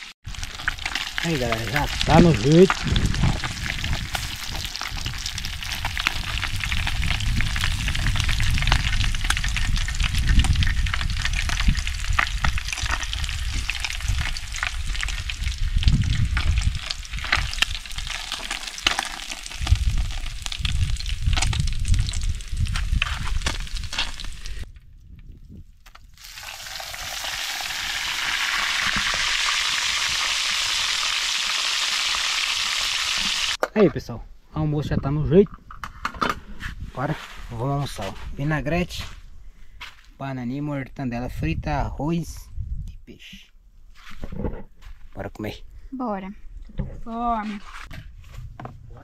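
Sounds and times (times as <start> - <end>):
fish frying in oil: 0.0 - 24.7, 26.2 - 33.6.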